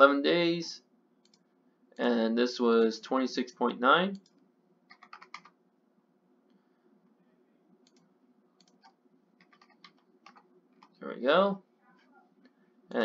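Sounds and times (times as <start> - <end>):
faint keyboard keystrokes: 4.1 - 5.6, 7.8 - 11.0.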